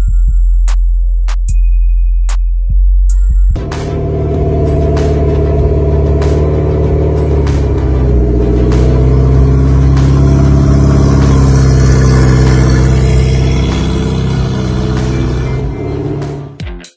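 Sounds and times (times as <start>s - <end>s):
car engine humming: 3.6s - 16.6s.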